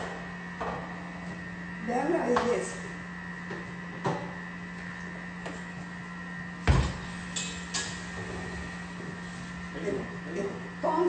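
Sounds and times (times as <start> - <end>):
electrical hum: 0.0 - 11.0
kitchenware thump: 6.7 - 7.0.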